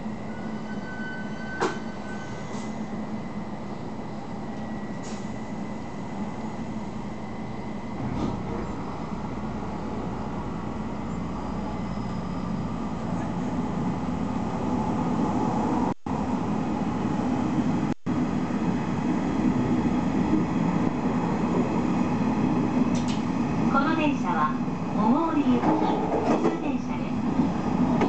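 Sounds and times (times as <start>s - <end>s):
train wheels rumbling on rails: 4.4s - 15.9s, 17.0s - 28.0s.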